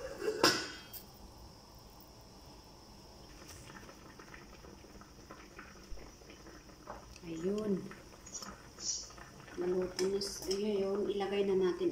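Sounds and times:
thin high hiss: 0.0 - 11.4
pot bubbling: 0.0 - 11.9
small ticks and pops: 3.4 - 11.1.

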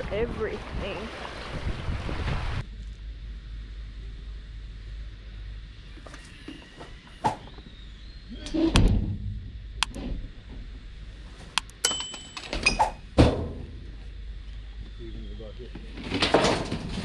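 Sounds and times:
sharp clicks: 11.6 - 11.9.

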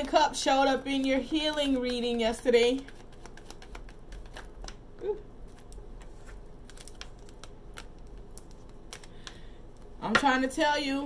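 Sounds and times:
cards being shuffled: 1.0 - 4.8, 5.4 - 9.8.

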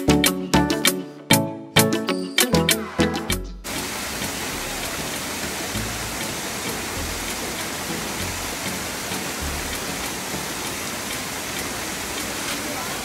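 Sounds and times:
small waterfall splashing: 3.7 - 13.0.

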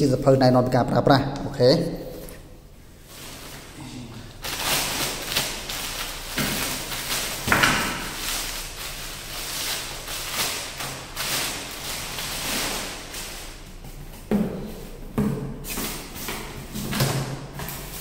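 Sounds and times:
plastic wrapping crinkling: 4.4 - 13.9.

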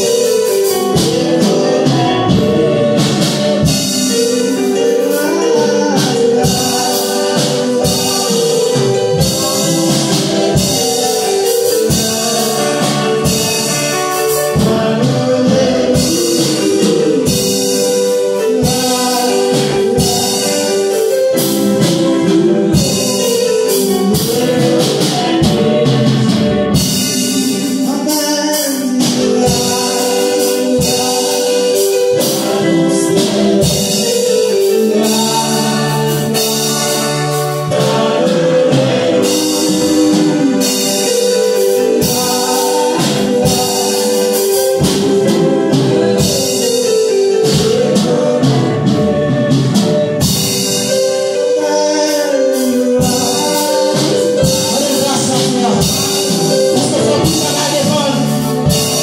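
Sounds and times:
gospel singing: 0.0 - 59.0
held instrumental chords: 0.0 - 59.0
steady percussion beat: 0.0 - 59.0.

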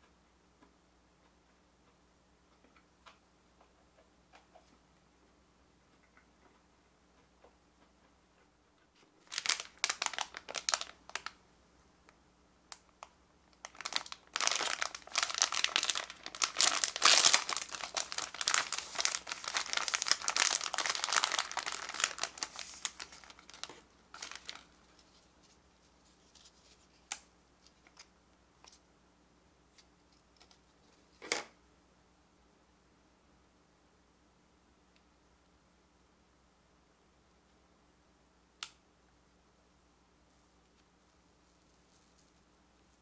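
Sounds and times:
plastic wrapper crinkling: 9.2 - 11.4, 12.7 - 28.8
plastic wrapper tearing: 9.2 - 11.4, 13.6 - 25.2.

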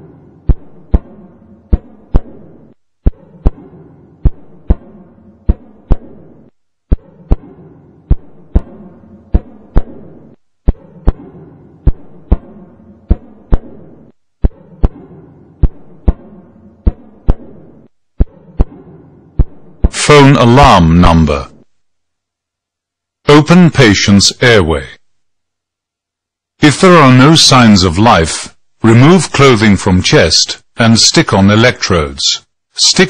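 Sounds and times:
low hum: 0.0 - 23.3, 24.3 - 30.0
heartbeat thumps: 0.4 - 20.0.

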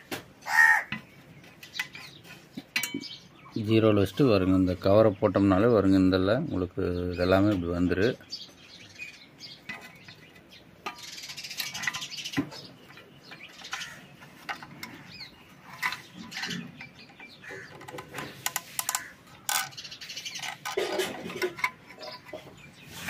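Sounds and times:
birds chirping: 0.0 - 23.0
plastic clicks and knocks: 15.8 - 19.8.

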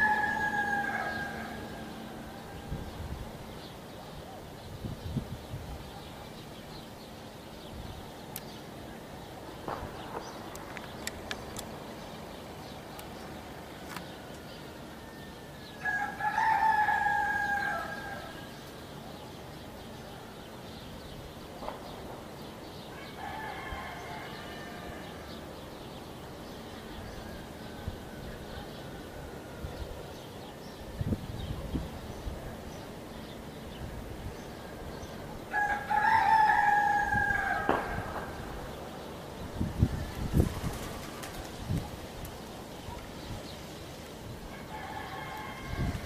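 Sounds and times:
rooster crowing: 0.0 - 3.0, 15.0 - 18.6, 22.9 - 25.4, 35.5 - 38.4, 44.5 - 46.0.

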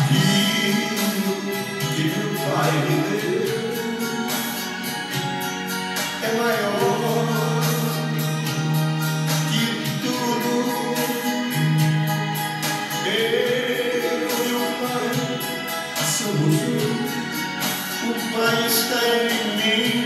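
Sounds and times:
backing track: 0.0 - 20.0
man singing into a microphone: 0.0 - 20.0.

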